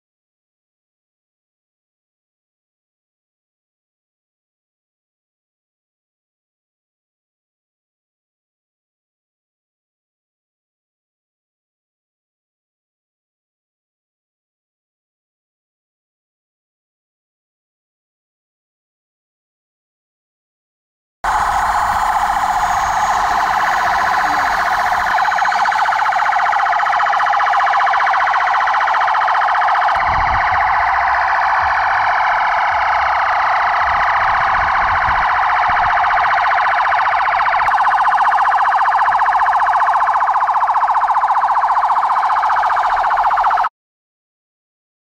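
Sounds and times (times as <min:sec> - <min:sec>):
police sirens wailing: 0:21.2 - 0:43.7.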